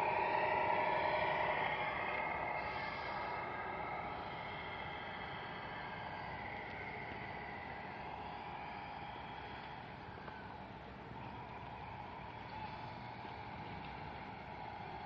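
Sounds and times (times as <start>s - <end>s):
toy truck electric motor whine: 0.0s - 10.6s.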